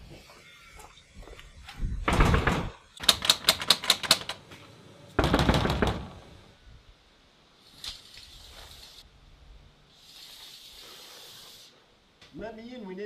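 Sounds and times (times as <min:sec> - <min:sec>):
sliding glass door rattling: 0:02.0 - 0:04.4, 0:05.2 - 0:06.3.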